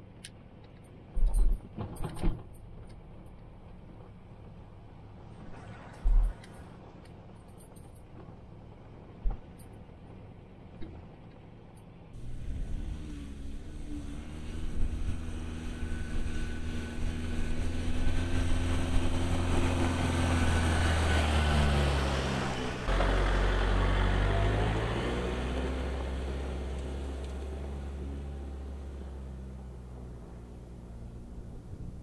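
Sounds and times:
diesel truck engine passing: 0:04.8 - 0:07.3, 0:12.2 - 0:32.0.

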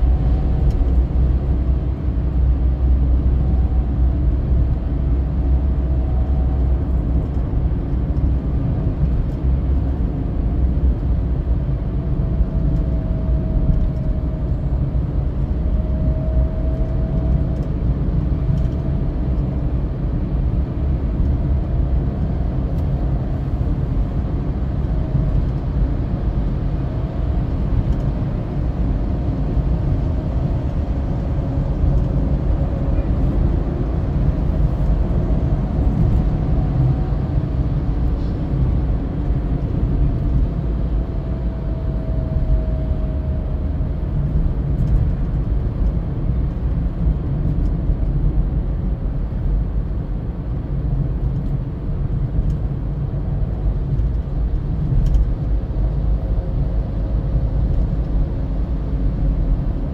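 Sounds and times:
car road noise rumble: 0:00.0 - 0:59.9.

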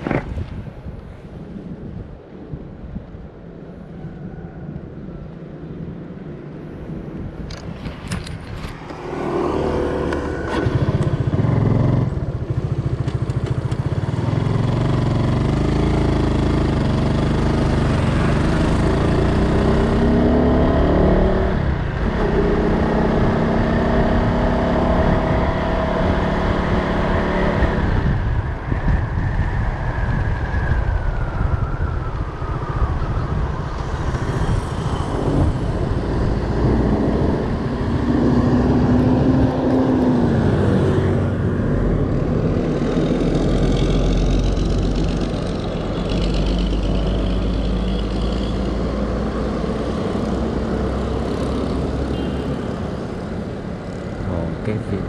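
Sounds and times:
street traffic: 0:00.0 - 0:55.0
motorbike engine accelerating: 0:09.0 - 0:28.1.

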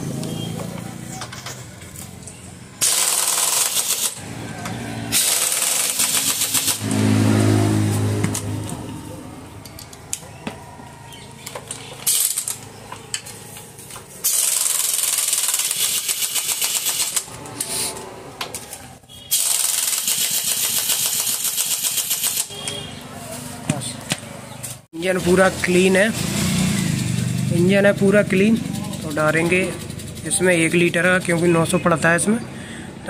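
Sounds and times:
impact wrench rattling: 0:02.8 - 0:04.2, 0:05.1 - 0:06.9, 0:11.4 - 0:13.1, 0:14.2 - 0:17.3, 0:19.3 - 0:22.5.

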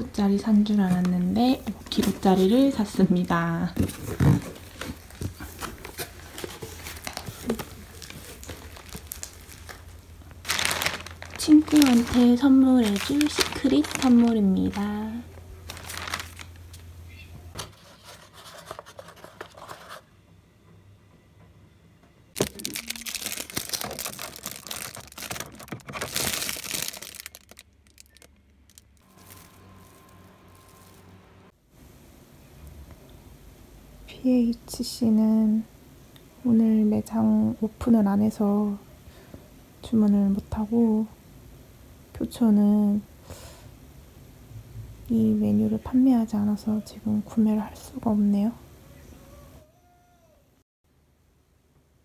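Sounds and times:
steady low hum: 0:00.0 - 0:17.8
crinkly rustling: 0:00.5 - 0:16.9, 0:22.4 - 0:31.2
cardboard rustling and scraping: 0:03.7 - 0:14.9, 0:15.7 - 0:16.4, 0:17.6 - 0:20.1.

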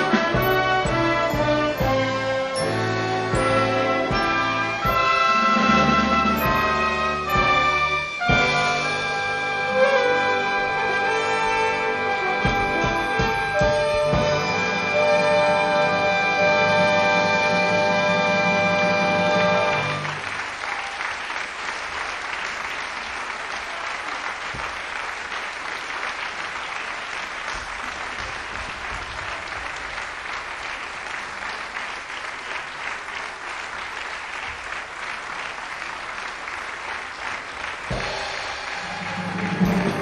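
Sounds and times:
audience applauding: 0:00.0 - 0:16.0, 0:19.0 - 0:40.0
orchestra playing: 0:00.0 - 0:20.2, 0:37.9 - 0:40.0.

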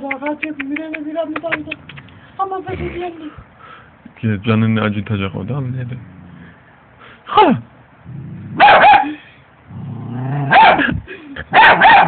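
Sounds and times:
puppy growling: 0:01.4 - 0:03.4, 0:05.8 - 0:06.6, 0:09.7 - 0:10.6
puppy barking: 0:08.6 - 0:09.2, 0:10.5 - 0:10.9, 0:11.5 - 0:12.0
puppy yelp: 0:08.6 - 0:09.2, 0:11.6 - 0:12.0.

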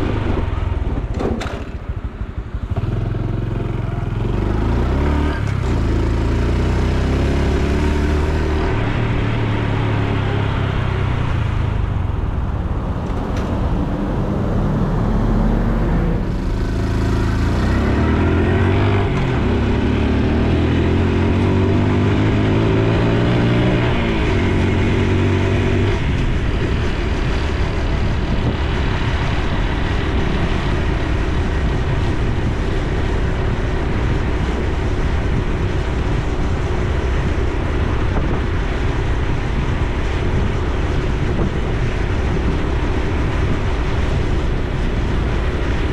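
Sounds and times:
motorcycle engine while riding: 0:00.0 - 0:45.9
wind and road noise: 0:00.0 - 0:45.9.

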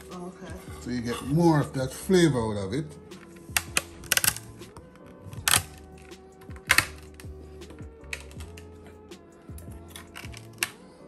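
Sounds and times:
background music: 0:00.0 - 0:11.0
berries cracking under knife: 0:03.2 - 0:11.0.

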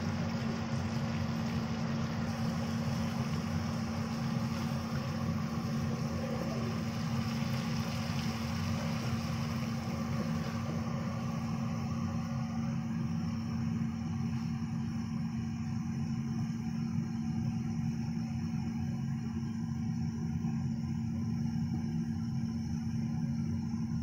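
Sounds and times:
faint hiss: 0:00.0 - 0:15.4
low mechanical hum: 0:00.0 - 0:24.0.

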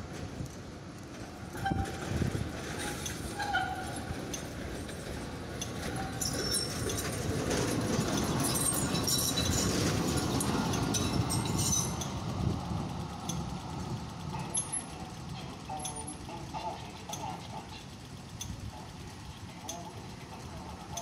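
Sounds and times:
tram rumbling past on rails: 0:00.0 - 0:21.0
high-pitched wheel squeals: 0:01.6 - 0:02.0, 0:02.8 - 0:04.0, 0:05.9 - 0:07.1, 0:08.4 - 0:09.8, 0:10.4 - 0:12.1.

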